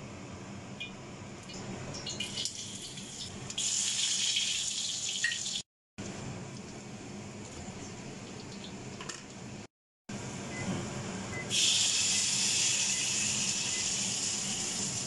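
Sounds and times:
fan hum: 6.0 - 15.0.

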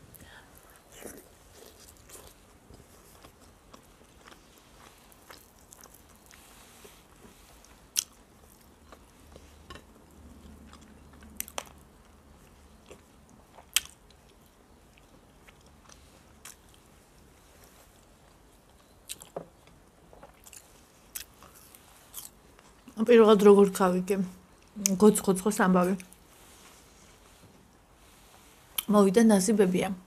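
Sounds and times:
person chewing: 0.6 - 11.8, 12.4 - 16.9, 17.5 - 23.0.

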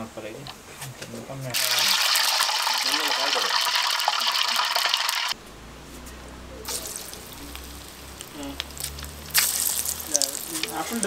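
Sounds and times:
hot oil sizzling and crackling: 1.5 - 5.4, 6.6 - 11.0.

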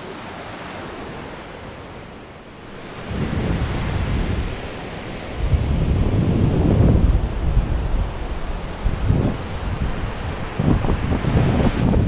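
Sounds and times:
surf breaking on beach: 2.5 - 12.0
wind buffeting microphone: 2.5 - 12.0.

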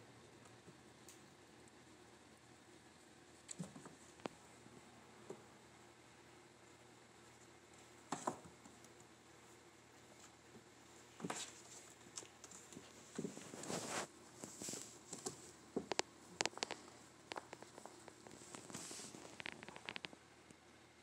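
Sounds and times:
kittens scrambling on fabric: 11.2 - 20.0.

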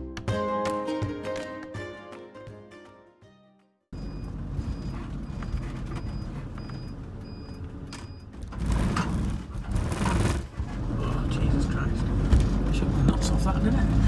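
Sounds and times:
engine and road rumble: 3.9 - 14.0
turn indicator beeping: 4.0 - 8.5.

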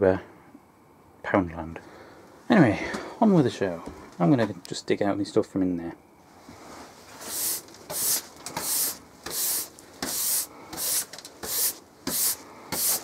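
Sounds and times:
hand brush sweeping: 6.3 - 13.0.

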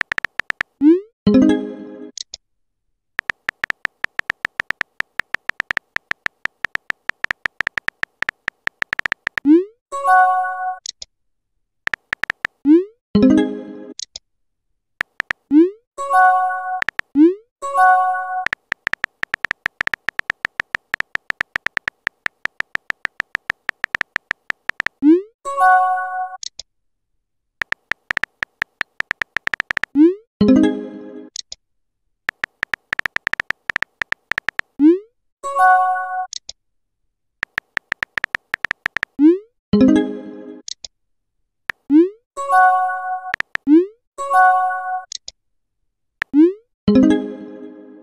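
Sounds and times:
keyboard typing ticks: 0.0 - 1.0, 3.2 - 9.6, 11.9 - 12.6, 15.0 - 15.4, 16.8 - 17.2, 18.4 - 25.0, 27.6 - 30.1, 32.3 - 34.7, 37.4 - 39.2, 43.3 - 43.8.

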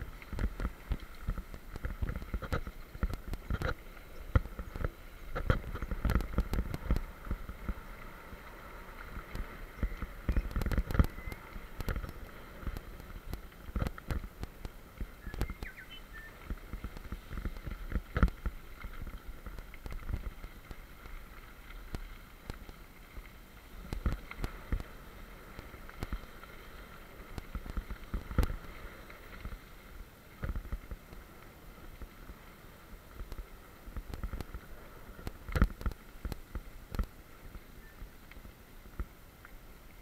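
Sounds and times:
bike tyres crunching on gravel: 0.0 - 39.2
bike knocking and rattling: 9.0 - 21.2.

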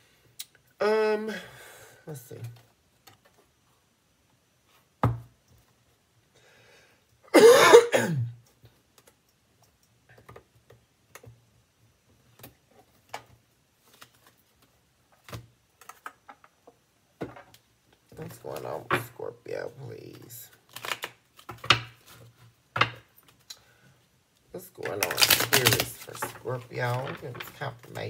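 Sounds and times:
person clearing throat: 7.4 - 8.4
cards clicking and tapping: 15.1 - 16.5, 20.7 - 23.5.

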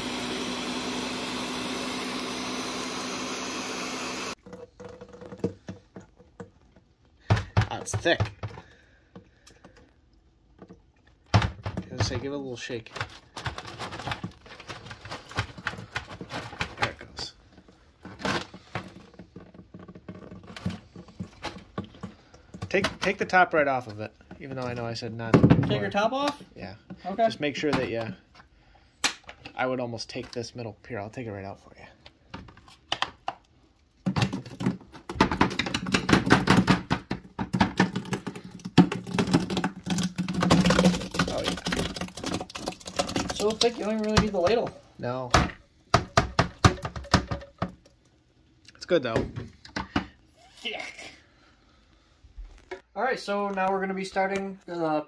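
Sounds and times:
plastic jar knocking and tapping: 34.0 - 44.7, 45.3 - 47.9.

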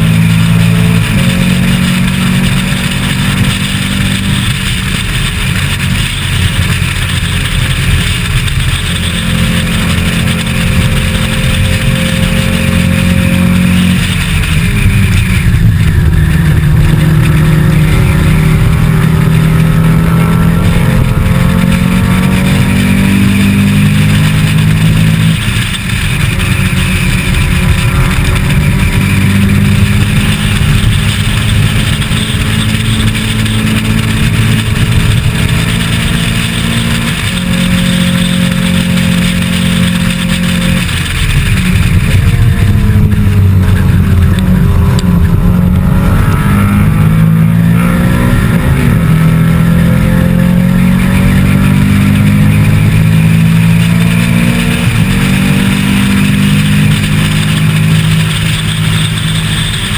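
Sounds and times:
race car engine under load: 0.0 - 59.9
wind noise over microphone: 0.0 - 59.9.

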